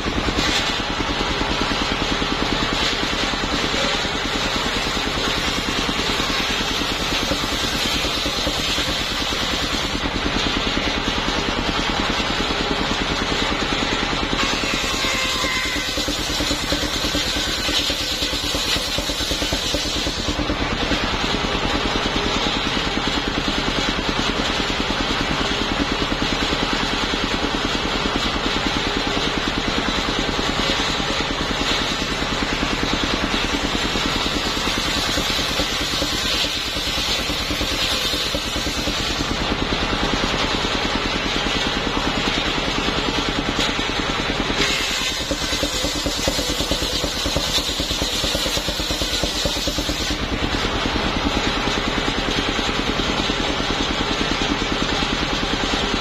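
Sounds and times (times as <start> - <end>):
saw blade cutting wood: 0.0 - 11.2, 13.3 - 21.2, 29.7 - 39.6, 44.5 - 50.6
sawmill engine running: 0.0 - 56.0.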